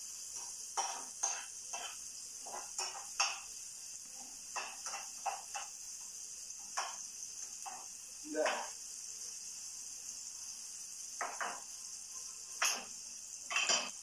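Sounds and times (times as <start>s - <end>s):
utensil scraping frying pan: 0.0s - 5.9s, 6.6s - 8.8s, 11.2s - 14.0s
frying hiss: 0.0s - 14.0s.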